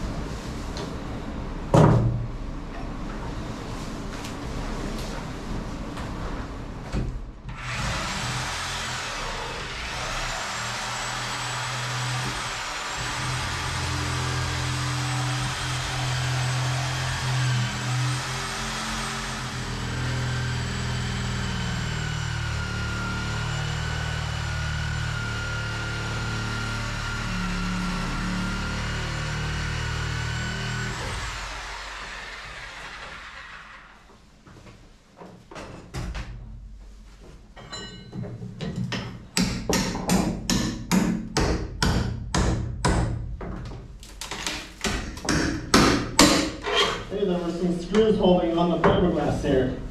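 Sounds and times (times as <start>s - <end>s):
power tool cutting wood: 7.5s - 34.0s
hammer striking wood: 38.9s - 43.3s, 44.4s - 46.6s.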